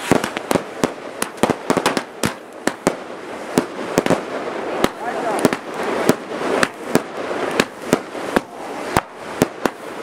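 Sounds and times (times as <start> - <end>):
fireworks bangs: 0.0 - 10.0.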